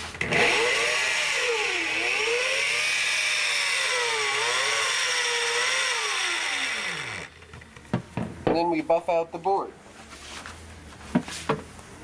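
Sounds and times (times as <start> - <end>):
rotary polisher motor whine: 0.2 - 7.5.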